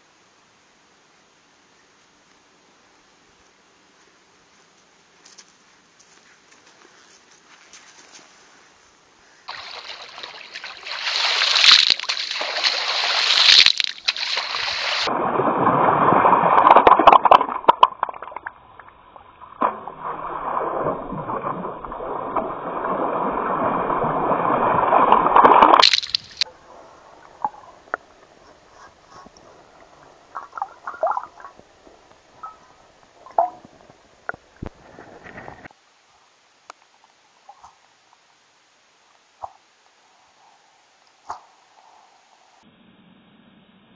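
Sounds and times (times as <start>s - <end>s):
water splashing and sloshing: 9.5s - 35.7s.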